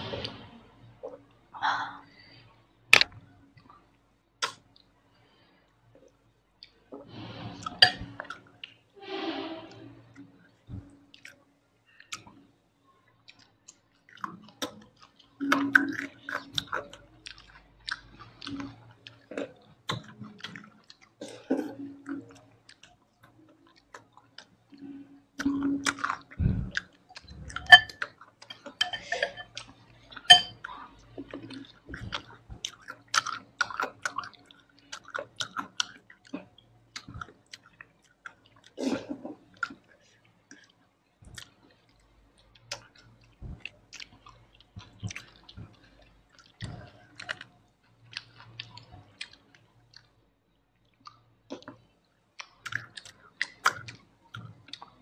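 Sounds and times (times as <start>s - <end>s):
wet chewing and lip-smacking: 3.0s - 4.9s, 13.2s - 38.8s, 39.4s - 55.0s.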